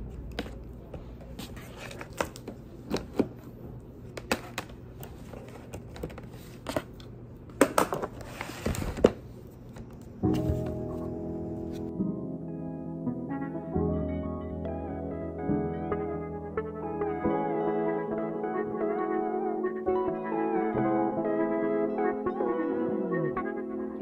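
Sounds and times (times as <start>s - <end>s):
background music: 10.3s - 24.0s.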